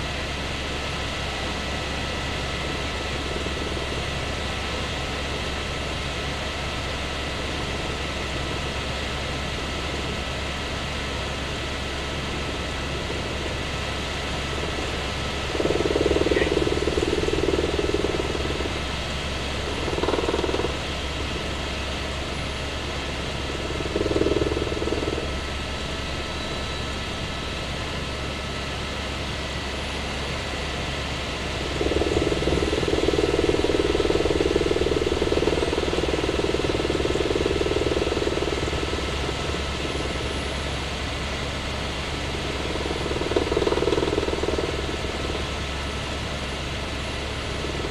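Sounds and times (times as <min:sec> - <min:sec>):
helicopter rotor drone: 0:00.0 - 0:47.9
muffled mid-pitched hum: 0:11.6 - 0:27.6.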